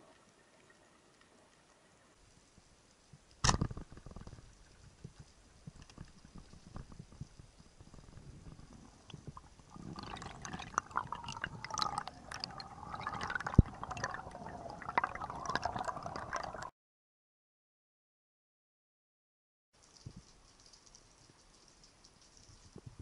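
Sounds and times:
faint underwater crackling clicks: 0:00.1 - 0:14.5, 0:19.8 - 0:22.9
water gurgling and sloshing: 0:03.8 - 0:16.7.

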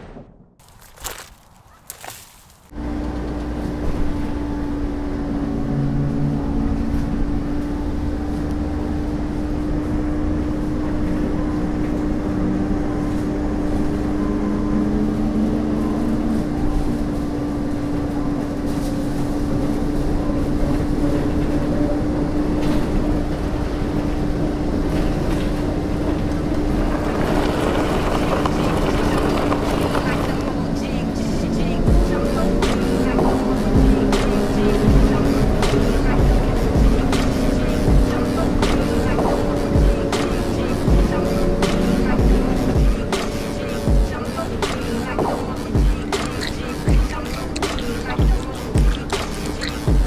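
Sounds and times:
held humming tone: 0:02.7 - 0:50.0
low rumbling drone: 0:02.7 - 0:50.0.

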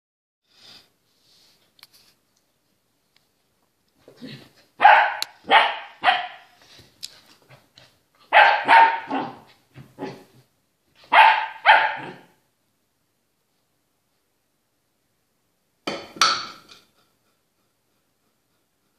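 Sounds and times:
puppy barking: 0:04.8 - 0:06.6, 0:08.2 - 0:10.2, 0:11.0 - 0:12.4.

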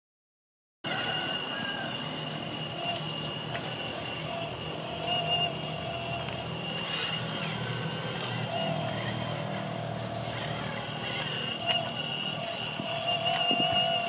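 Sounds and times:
hydraulic pump whine: 0:00.8 - 0:14.0.

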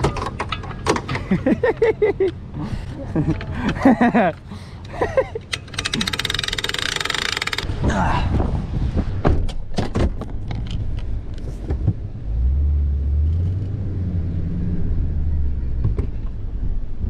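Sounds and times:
clicks and knocks: 0:00.0 - 0:01.5
truck engine hum: 0:00.0 - 0:07.7
winch ratchet clicking: 0:04.9 - 0:07.7.

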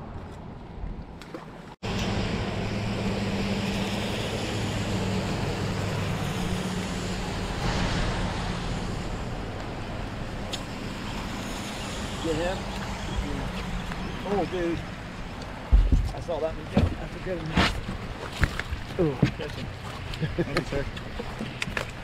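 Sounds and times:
heavy rain hissing on water: 0:02.1 - 0:13.4.

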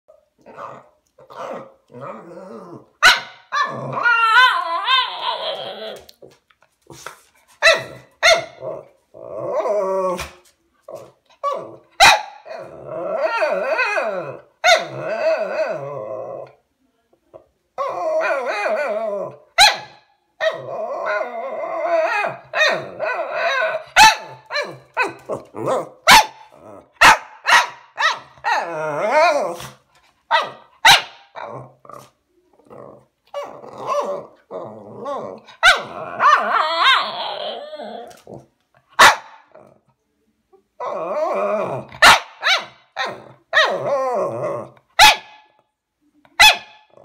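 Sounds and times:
dog grumbling and growling: 0:00.4 - 0:03.0, 0:03.6 - 0:07.0, 0:08.6 - 0:16.6, 0:20.5 - 0:27.0, 0:28.4 - 0:29.8, 0:31.4 - 0:38.6, 0:40.8 - 0:42.1, 0:43.0 - 0:44.9
dog barking sharply: 0:27.0 - 0:28.2, 0:39.0 - 0:39.4.

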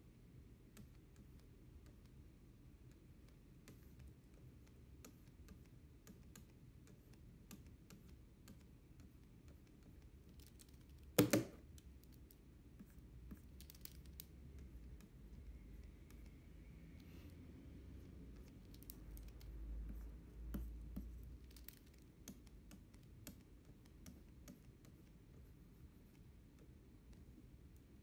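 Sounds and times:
stylus pen tapping on screen: 0:11.0 - 0:11.9.

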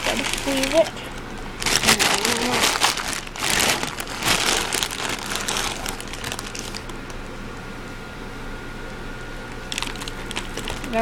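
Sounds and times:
dry food pellets rattling: 0:00.0 - 0:07.0, 0:09.7 - 0:11.0
plastic bag crinkling: 0:00.0 - 0:07.2, 0:09.6 - 0:11.0.

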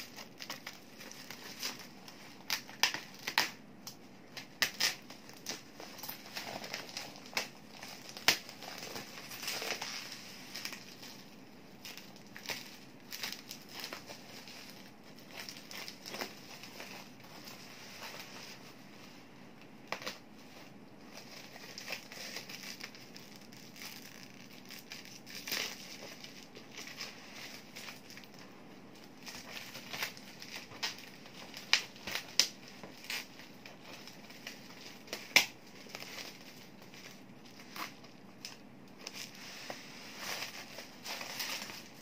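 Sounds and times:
bubble wrap crinkling: 0:00.0 - 0:42.0.

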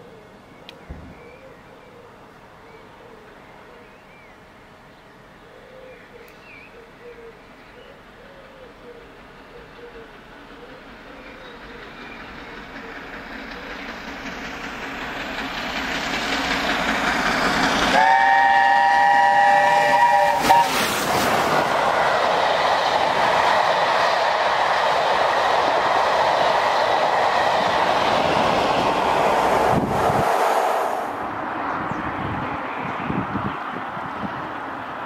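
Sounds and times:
steam locomotive approaching: 0:06.0 - 0:35.0.

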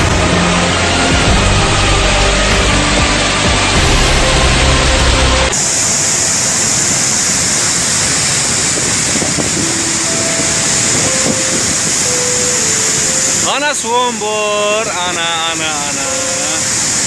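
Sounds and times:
low rumble: 0:00.0 - 0:13.5
floodwater torrent rushing: 0:00.0 - 0:17.0.

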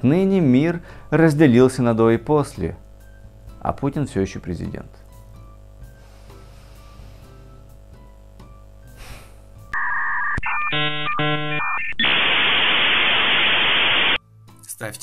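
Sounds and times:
faint background music: 0:00.0 - 0:09.8, 0:14.2 - 0:15.0
dial-up modem tones: 0:09.7 - 0:14.2
static hiss: 0:11.3 - 0:14.2.

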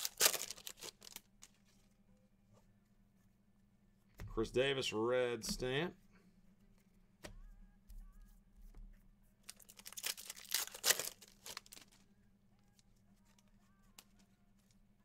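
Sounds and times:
foil wrapper ripping and crinkling: 0:00.0 - 0:01.5, 0:09.5 - 0:12.0.

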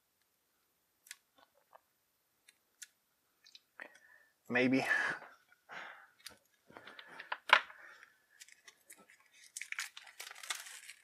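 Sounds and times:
plastic film crinkling and tearing: 0:08.3 - 0:11.0
knife slitting plastic wrap: 0:09.4 - 0:11.0.

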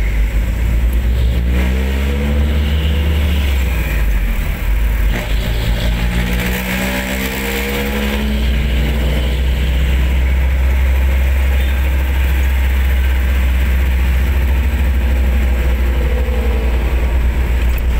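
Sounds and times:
motorcycle road noise: 0:00.0 - 0:17.9.

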